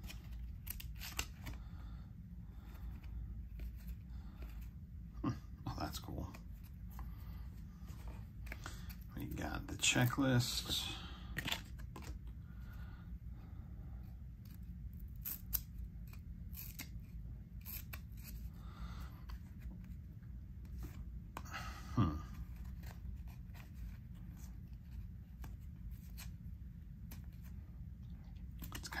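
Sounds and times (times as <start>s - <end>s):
trading cards clicking and snapping: 0.0s - 1.6s, 11.3s - 12.2s
low steady hum: 0.0s - 29.0s.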